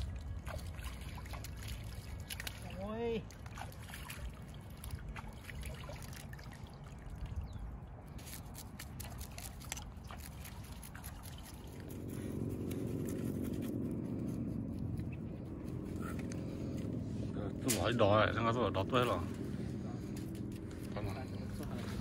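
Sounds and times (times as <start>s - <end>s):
river water splashing: 0.0s - 13.4s
steady low hum: 0.0s - 22.0s.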